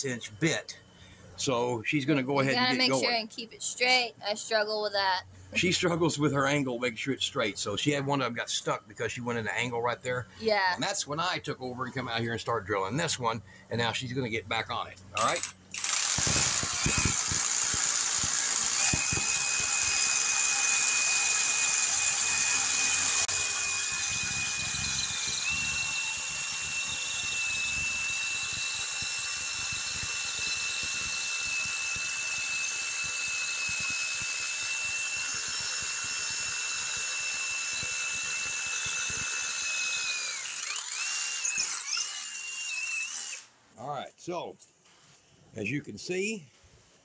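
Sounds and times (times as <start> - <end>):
rotary hammer drilling concrete: 15.2 - 43.5.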